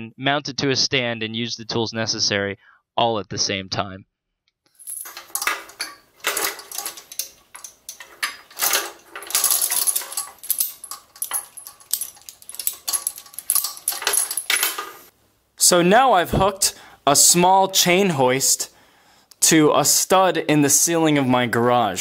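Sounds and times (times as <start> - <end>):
metal chain clinking and rattling: 4.7 - 15.1.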